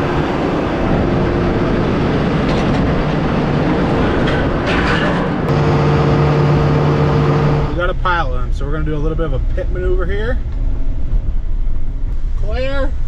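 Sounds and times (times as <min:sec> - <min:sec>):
low hum: 0:05.5 - 0:08.1.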